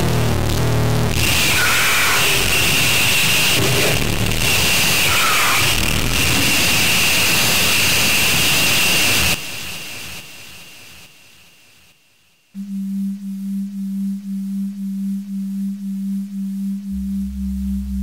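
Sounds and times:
steady high tone: 0:12.6 - 0:18.0
harsh electronic noise music: 0:16.4 - 0:18.0.

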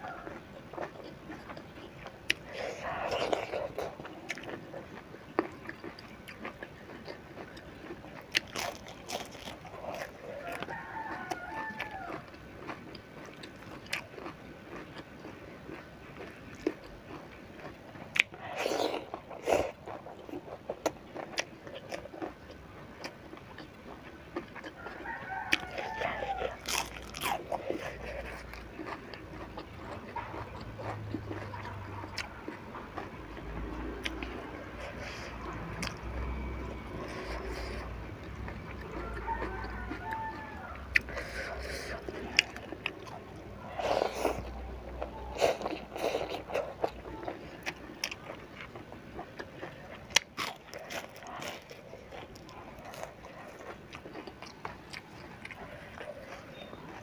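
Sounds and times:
rooster crowing: 0:00.0 - 0:00.4, 0:09.9 - 0:12.4, 0:24.6 - 0:27.4, 0:38.5 - 0:41.6
crunching and chewing fried fish: 0:00.0 - 0:57.0.

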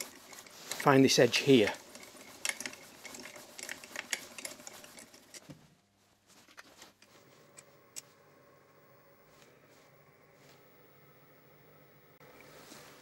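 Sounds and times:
milling machine handwheel clicking: 0:00.0 - 0:05.4
faint steady hum: 0:00.0 - 0:13.0.

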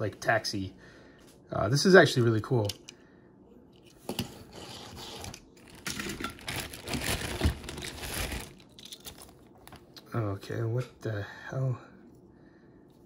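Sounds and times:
rustling and crinkling: 0:04.1 - 0:10.0.

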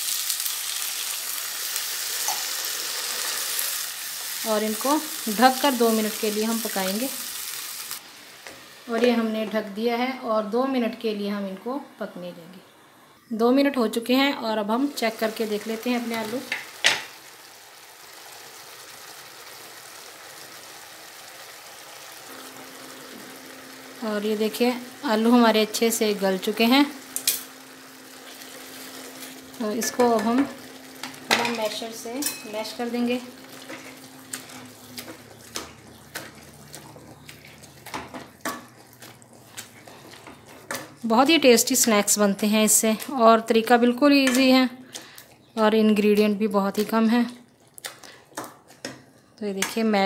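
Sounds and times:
masher squelching potato in water: 0:34.3 - 0:41.1.

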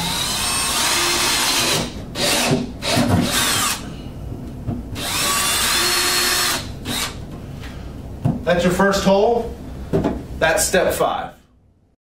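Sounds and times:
power drill boring plastic: 0:00.0 - 0:03.8, 0:05.0 - 0:07.2.

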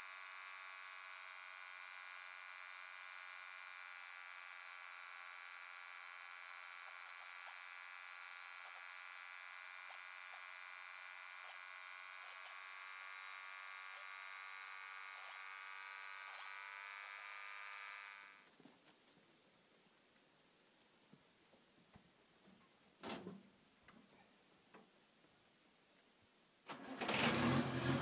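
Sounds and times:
air compressor humming: 0:00.0 - 0:18.5.

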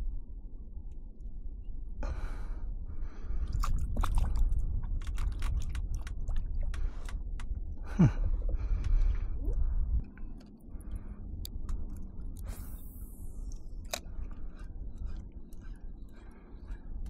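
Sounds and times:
wind rumble on microphone: 0:00.0 - 0:17.0
small clicks and ticks: 0:04.8 - 0:07.6, 0:10.0 - 0:16.8.

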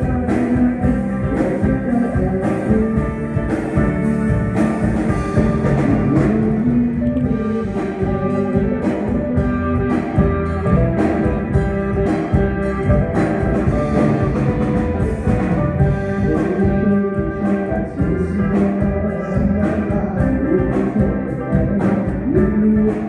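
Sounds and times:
drum kit beat: 0:00.0 - 0:23.0
sustained guitar chords: 0:00.0 - 0:23.0.

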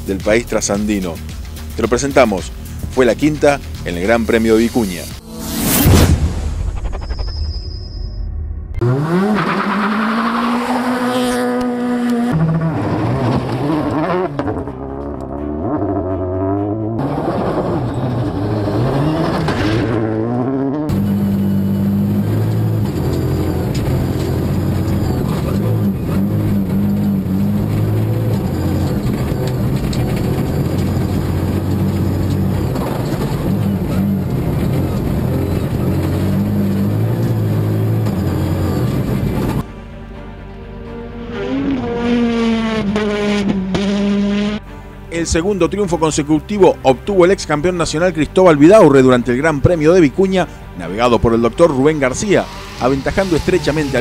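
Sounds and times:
background music: 0:00.0 - 0:06.8, 0:11.7 - 0:54.0
rally car engines revving: 0:08.8 - 0:39.6, 0:40.8 - 0:44.8, 0:48.6 - 0:54.0.

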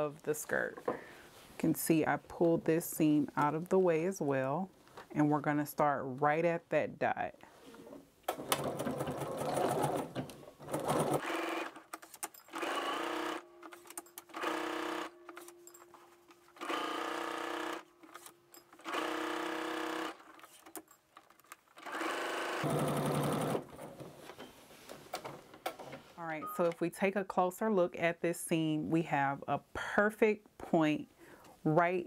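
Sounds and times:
sewing machine motor hum: 0:12.5 - 0:13.4, 0:14.3 - 0:15.2, 0:16.6 - 0:18.2, 0:18.8 - 0:20.5, 0:21.8 - 0:23.7.

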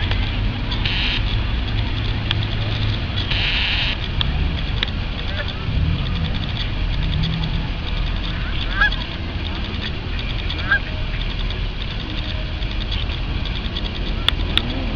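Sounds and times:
steady low rumble: 0:00.0 - 0:14.9
geese honking: 0:00.7 - 0:01.3, 0:03.2 - 0:04.1, 0:05.2 - 0:11.5.

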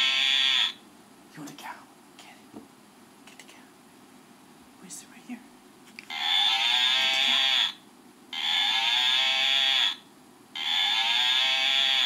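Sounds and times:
tinny recorded toy moo: 0:00.0 - 0:00.8, 0:06.1 - 0:12.0.

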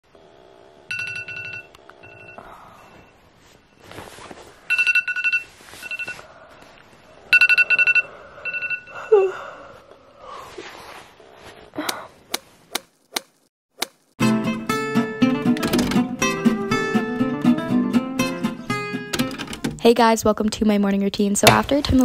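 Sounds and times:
phone alarm beeping: 0:00.9 - 0:03.1, 0:04.7 - 0:06.2, 0:07.3 - 0:09.2
rustling: 0:03.4 - 0:04.7.

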